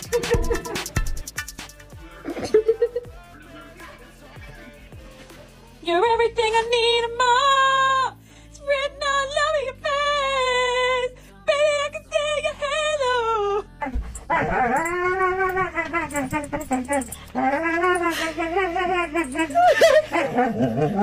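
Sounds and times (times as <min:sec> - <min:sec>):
dog howling: 0:13.8 - 0:21.0.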